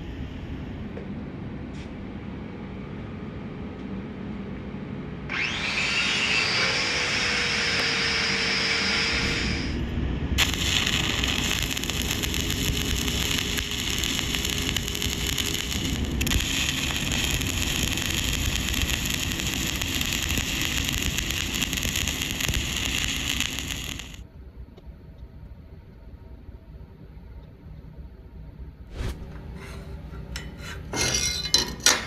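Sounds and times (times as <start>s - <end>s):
welding arc crackling and sizzling: 10.4s - 24.2s.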